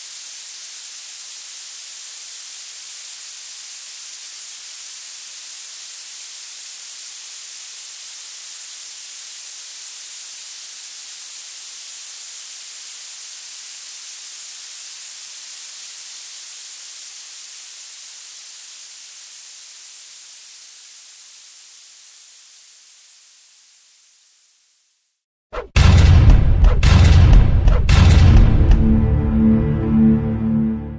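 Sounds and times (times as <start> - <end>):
high-pitched hiss: 0.0 - 25.3.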